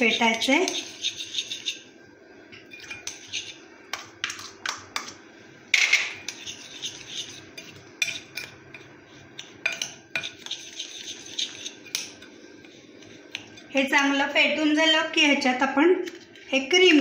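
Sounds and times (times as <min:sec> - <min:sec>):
spoon scraping glass bowl: 0:00.0 - 0:01.9, 0:02.5 - 0:04.4, 0:06.1 - 0:13.7.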